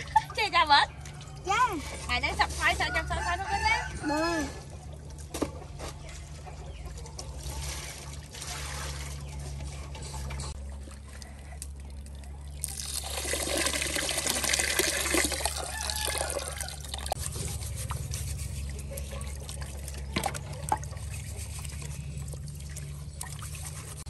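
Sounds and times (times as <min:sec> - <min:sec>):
water poured out of metal pot: 0:12.1 - 0:17.3
tap water running into pot: 0:12.6 - 0:17.2.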